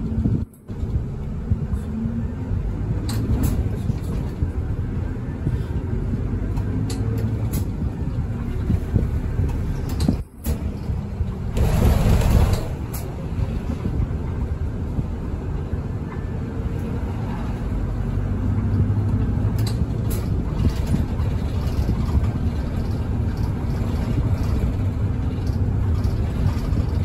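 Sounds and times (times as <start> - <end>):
bus engine and road rumble: 0.0 - 27.0
rattles and clicks: 6.5 - 14.2, 18.4 - 27.0.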